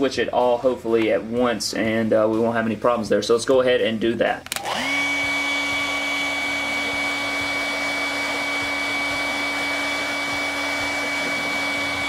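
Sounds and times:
hair dryer blowing: 4.5 - 12.0.

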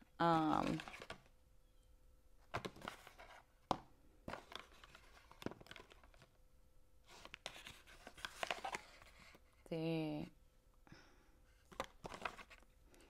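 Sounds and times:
papers rustling: 0.3 - 1.3, 2.4 - 6.4, 7.0 - 9.5, 11.6 - 13.0.

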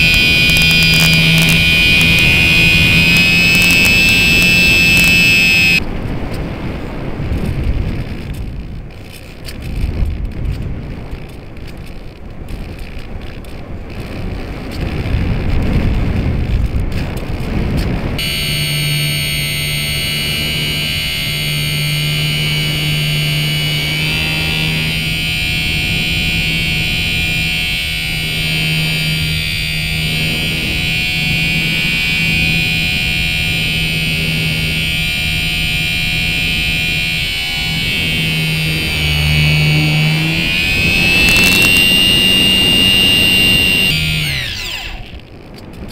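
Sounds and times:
electric motor whine: 0.0 - 5.8, 18.2 - 45.3.

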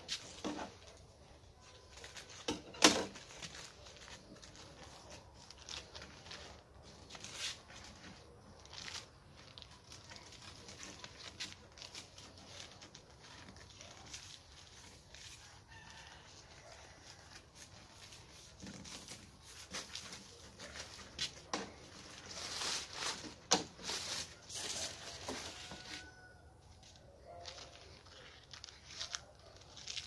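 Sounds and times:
rooster crowing faintly: 13.2 - 18.5, 23.8 - 30.0.

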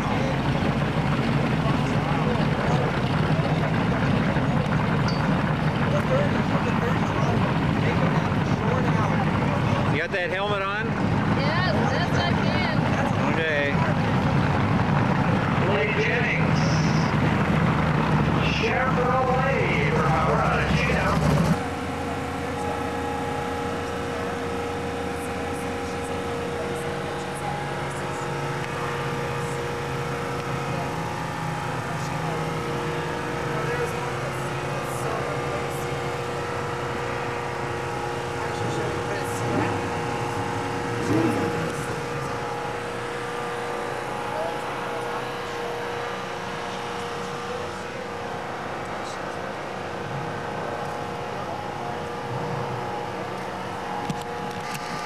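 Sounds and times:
engines droning: 0.0 - 55.0.

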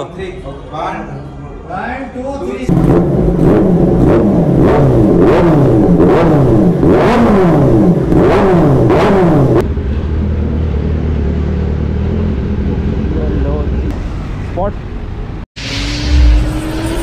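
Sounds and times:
motorcycle engine revving: 2.7 - 14.6
motorcycle engine low rumble: 2.7 - 15.4.

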